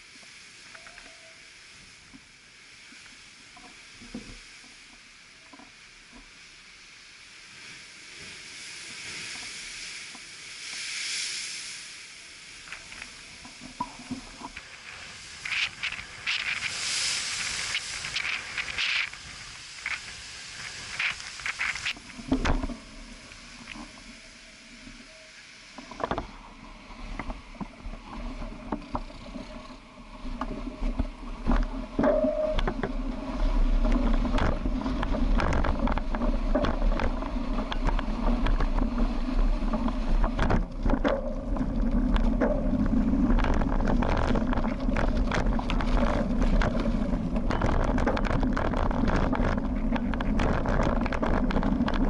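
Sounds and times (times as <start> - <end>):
surf washing over rocks: 0.0 - 52.0
scattered crackles: 12.5 - 25.2, 25.8 - 52.0
wind buffeting microphone: 30.4 - 52.0.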